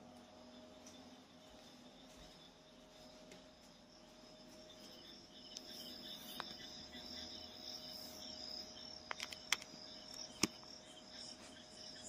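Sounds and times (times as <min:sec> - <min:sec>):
crickets chirring: 0:00.0 - 0:12.0
sharp clicks: 0:09.0 - 0:10.7.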